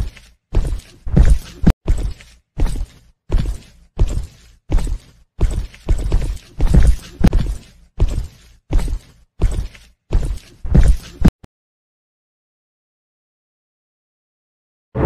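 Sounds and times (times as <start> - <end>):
heavy footsteps walking: 0.0 - 11.3.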